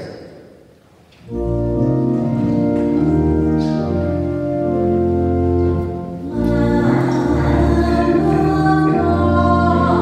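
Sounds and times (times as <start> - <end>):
church organ chords: 1.2 - 10.0
people singing a hymn: 5.8 - 10.0.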